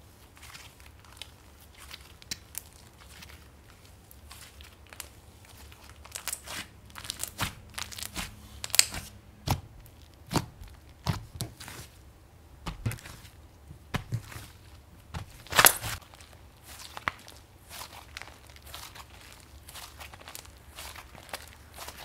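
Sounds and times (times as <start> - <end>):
slime popping and crackling: 4.1 - 11.9, 12.6 - 22.0.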